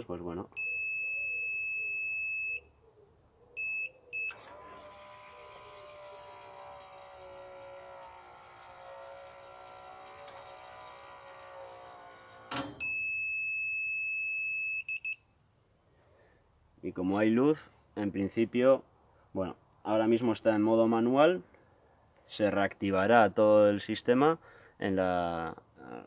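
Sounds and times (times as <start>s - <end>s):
electric motor whining: 4.3s - 12.8s
motor stopping click: 4.3s - 12.8s.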